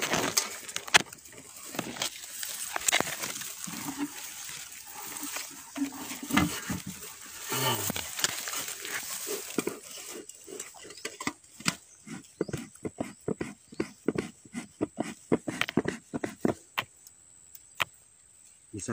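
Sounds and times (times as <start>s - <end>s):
handling noise: 0.0s - 12.7s
low grunt-like sound: 7.4s - 8.2s.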